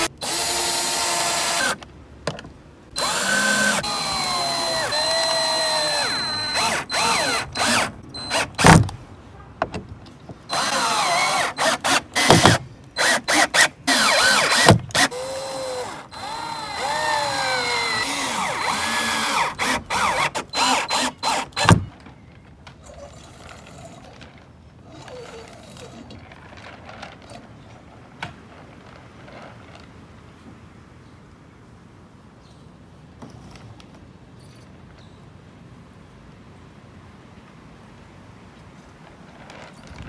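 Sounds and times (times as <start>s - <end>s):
power drill motor whine: 0.0s - 1.8s, 3.0s - 8.7s, 10.5s - 21.8s.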